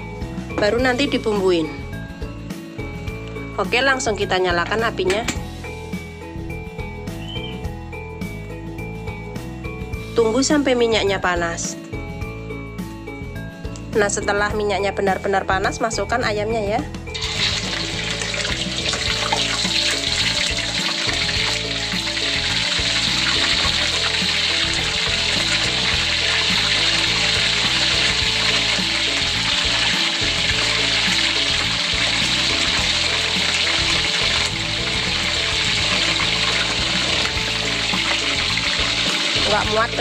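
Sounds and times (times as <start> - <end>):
background music: 0.0 - 40.0
chicken deep-frying in oil: 17.2 - 40.0.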